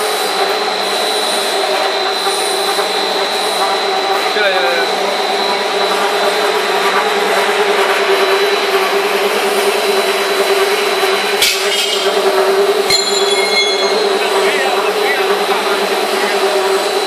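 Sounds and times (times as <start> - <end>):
machine drone with high whine: 0.0 - 17.0.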